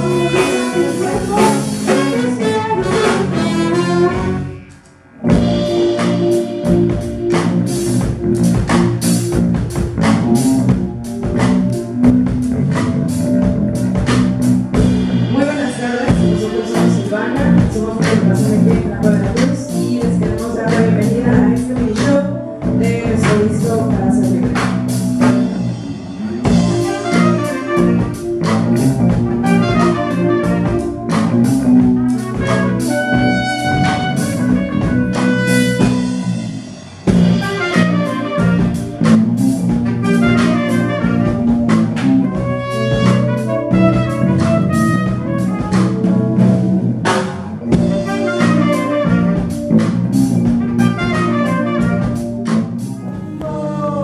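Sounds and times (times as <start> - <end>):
trumpet: 0.0 - 8.4, 24.5 - 54.0
saxophone: 0.0 - 14.7, 19.6 - 54.0
drum kit: 0.0 - 54.0
electric bass: 0.0 - 54.0.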